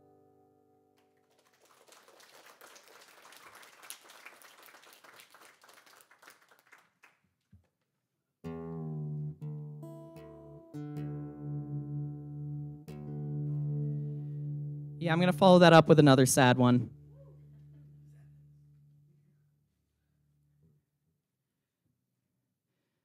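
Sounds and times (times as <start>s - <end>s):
faint applause: 1.0s - 7.2s
guitar strings plucked for tuning: 8.5s - 19.4s
acoustic guitar chord: 8.5s - 19.6s.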